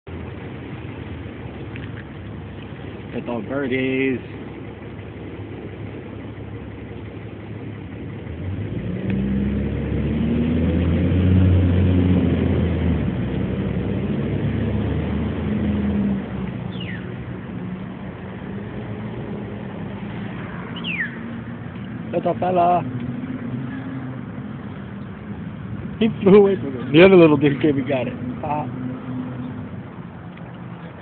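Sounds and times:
vehicle engine humming: 0:00.0 - 0:31.0
high falling bird chirp: 0:16.7 - 0:17.2, 0:20.7 - 0:21.4.

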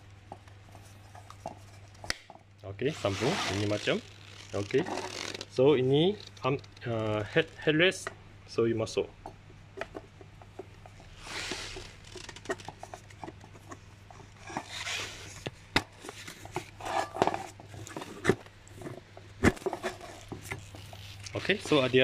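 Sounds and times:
plastic parts rubbing and scraping: 0:02.9 - 0:07.7, 0:09.8 - 0:22.0.

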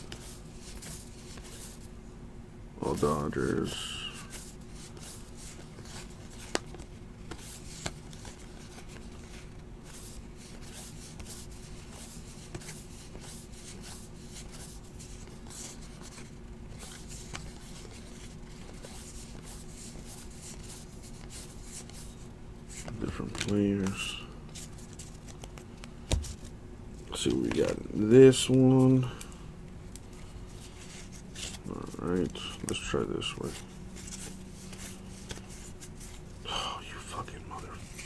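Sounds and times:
cards rustling and sliding: 0:00.0 - 0:01.9, 0:02.9 - 0:36.4, 0:37.1 - 0:38.0
faint steady hum: 0:00.0 - 0:38.0.

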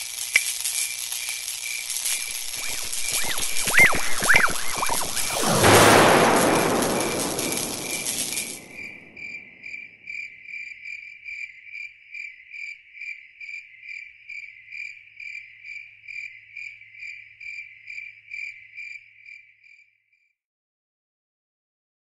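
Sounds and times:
loud rushing noise: 0:02.0 - 0:09.3.

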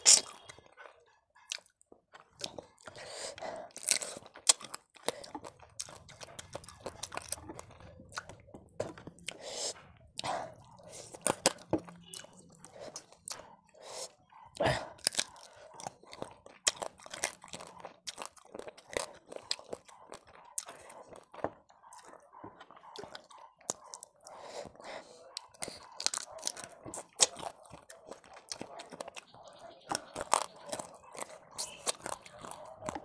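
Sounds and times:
person chewing: 0:00.0 - 0:33.0.

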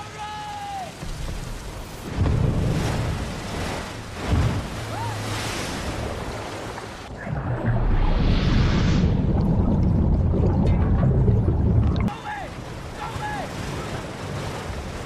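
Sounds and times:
rain: 0:00.0 - 0:15.0
surging water: 0:00.0 - 0:15.0
deep rumble: 0:01.0 - 0:12.1
rushing wind: 0:01.0 - 0:15.0.

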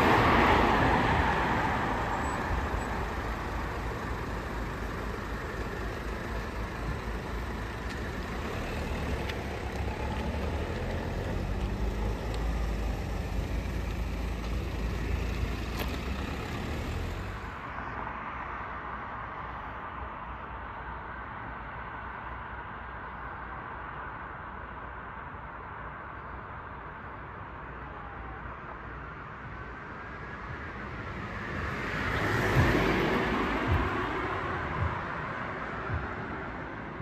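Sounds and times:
car driving past: 0:00.0 - 0:18.0, 0:31.1 - 0:37.0
low rumble of traffic: 0:00.0 - 0:37.0.

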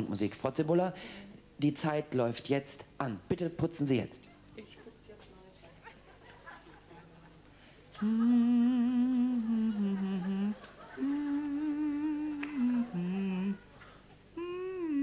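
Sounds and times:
man humming a tune: 0:07.9 - 0:15.0.

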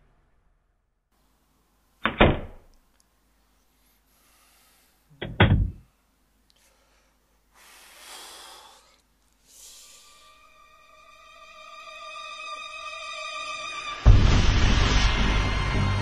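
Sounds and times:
heavy thuds on wooden door: 0:05.2 - 0:05.8.

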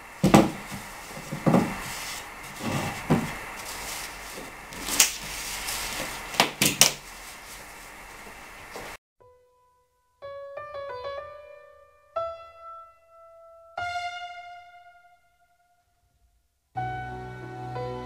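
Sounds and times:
wooden plank thumps: 0:00.2 - 0:03.4.

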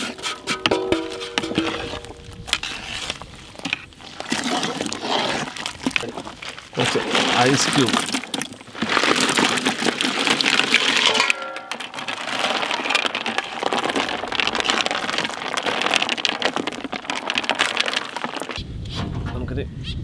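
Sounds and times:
metal ladle stirring ice: 0:00.0 - 0:18.6
ice cubes clattering into a pot: 0:04.3 - 0:18.6.

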